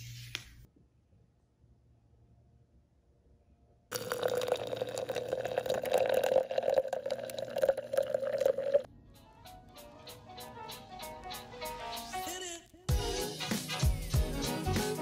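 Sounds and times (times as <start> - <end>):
water pouring into cup fizzing: 3.9 - 8.9
music with light beat: 9.0 - 15.0.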